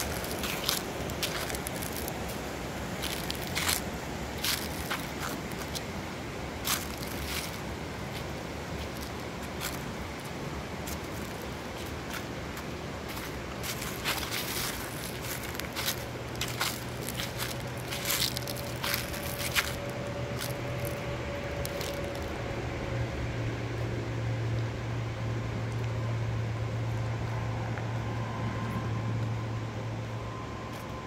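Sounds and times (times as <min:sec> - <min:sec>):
footsteps crunching on gravel: 0:00.0 - 0:06.0, 0:06.6 - 0:22.4
steady low hum: 0:00.0 - 0:31.0.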